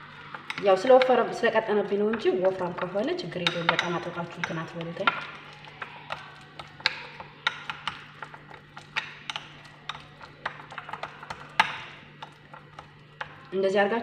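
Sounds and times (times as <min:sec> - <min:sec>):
spoon clinking against glass bowl: 0:02.1 - 0:13.0.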